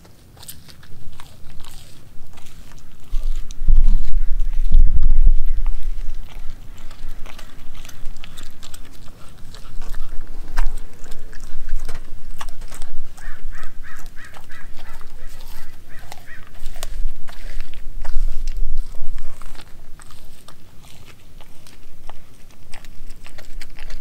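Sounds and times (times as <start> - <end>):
dog chewing and licking meat: 0.0 - 24.0
bird calling: 2.5 - 17.6.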